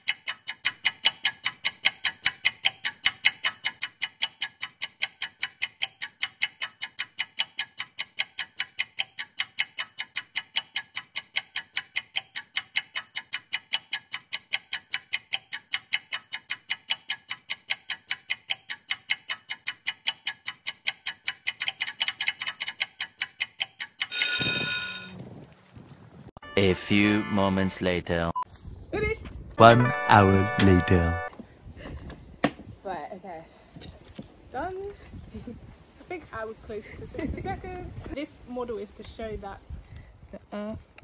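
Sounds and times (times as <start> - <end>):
sharp clock ticks: 0.0 - 25.1
alarm-like ringing tone: 24.1 - 25.2.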